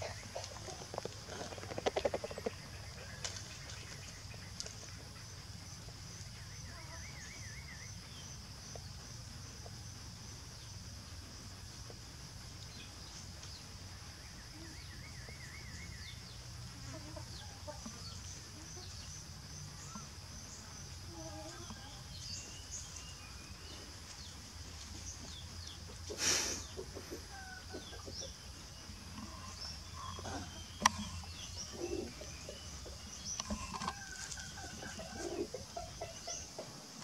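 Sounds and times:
chickens clucking: 0.0 - 6.0, 14.4 - 22.1, 23.7 - 37.0.

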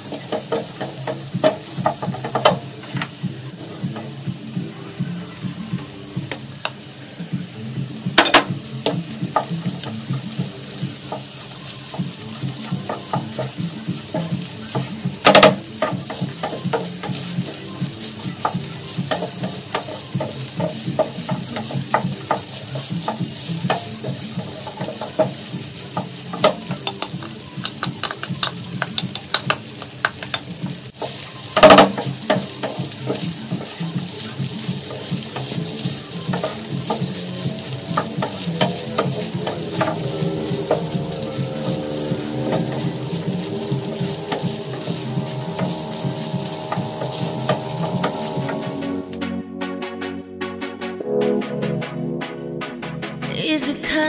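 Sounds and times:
food sizzling in a frying pan: 0.0 - 49.2
spatula knocking on pan: 0.1 - 3.2, 12.0 - 48.8
wooden spatula scraping a pan: 11.0 - 27.4, 31.0 - 49.1.

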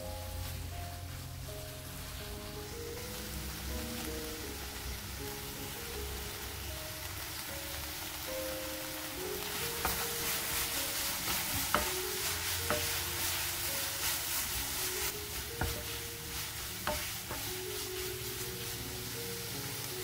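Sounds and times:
vegetables sizzling in a pan: 0.0 - 20.0.

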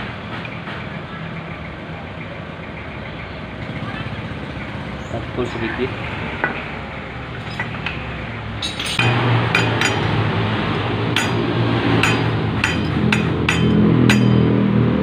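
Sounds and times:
low machine hum: 5.9 - 15.0
metal punch tapping bearing: 7.3 - 10.4, 11.1 - 14.6.

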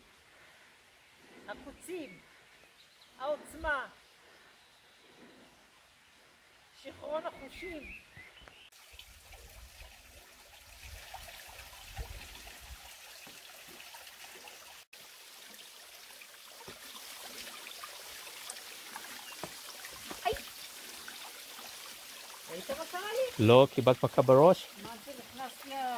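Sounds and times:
stream trickling over rocks: 8.7 - 25.9.

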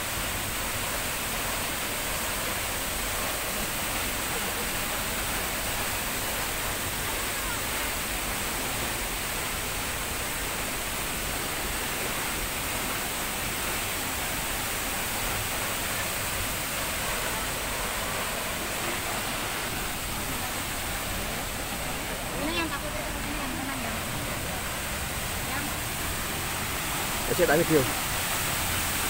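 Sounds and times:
river rapids: 0.0 - 29.0
waterfall rushing: 0.0 - 29.0.

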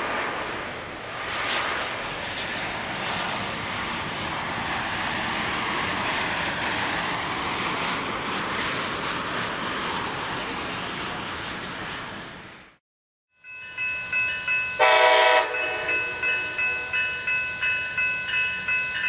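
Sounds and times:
jet airliner flying low: 0.0 - 12.8.

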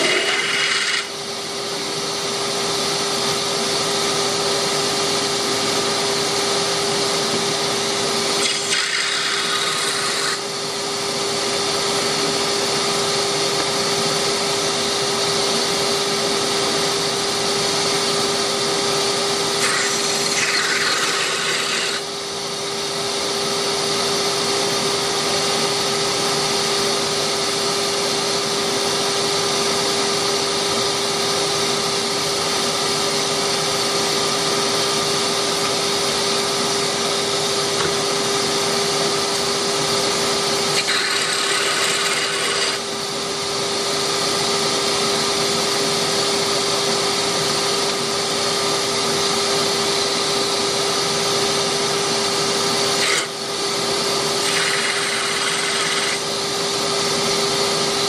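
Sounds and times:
lathe tool cutting wood: 0.0 - 1.2, 8.4 - 10.6, 19.5 - 22.1, 40.6 - 43.0, 52.6 - 56.4
wood lathe motor hum: 0.0 - 1.6, 8.4 - 10.8, 19.4 - 22.2, 38.3 - 43.4, 52.1 - 56.8.

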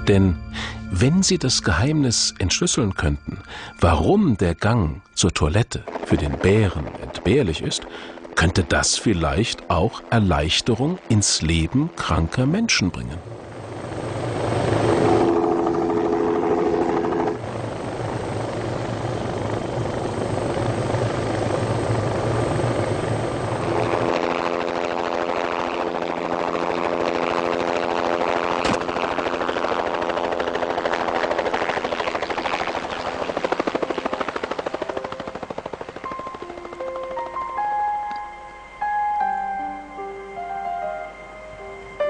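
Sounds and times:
helicopter rotor and engine: 5.3 - 38.2.

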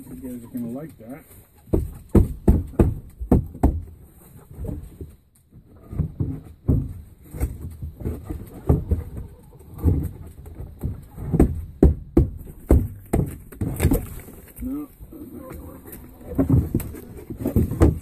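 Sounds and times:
knocks and bumps on microphone: 15.6 - 18.0.

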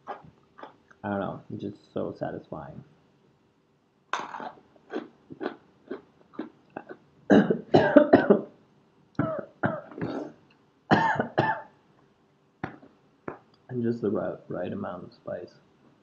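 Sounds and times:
man coughing: 7.3 - 8.4, 9.2 - 10.3, 10.9 - 11.7.

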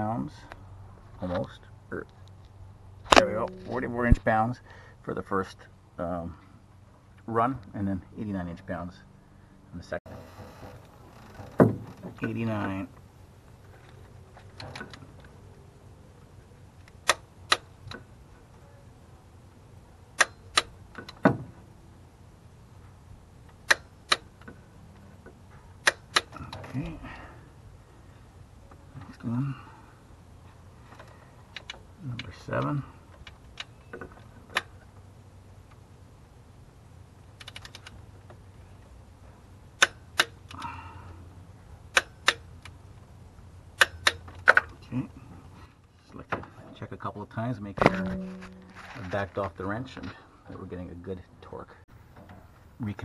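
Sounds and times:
torque wrench clicking: 41.9 - 42.7.

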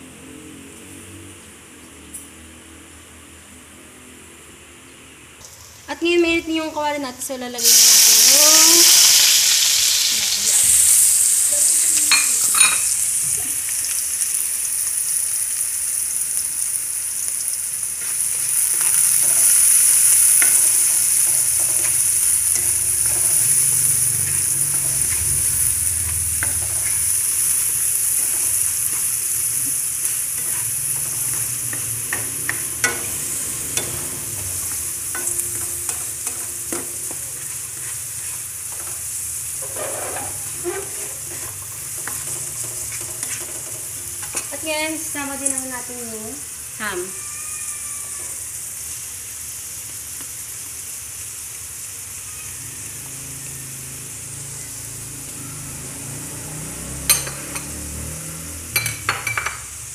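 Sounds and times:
vegetables sizzling in oil: 5.4 - 59.9
spatula scraping metal pan: 18.7 - 39.0, 39.6 - 44.7.

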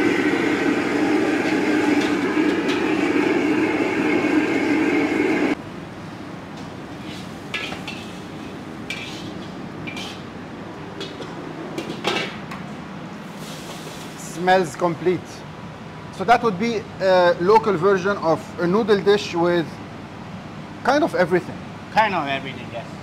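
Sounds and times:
burner roar and sizzle: 0.0 - 5.6, 13.1 - 15.2
metal utensils scraping a wok: 7.0 - 10.3.

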